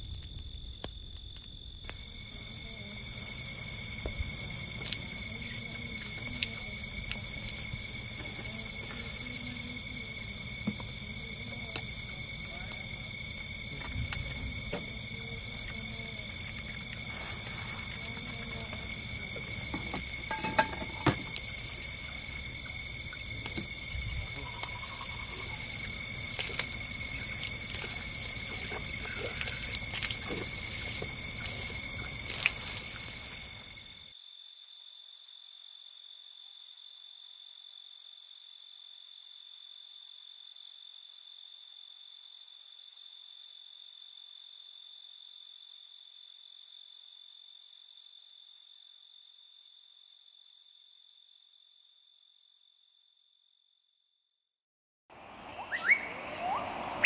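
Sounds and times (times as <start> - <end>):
night chorus of calling animals: 2.0 - 34.0, 55.2 - 57.0.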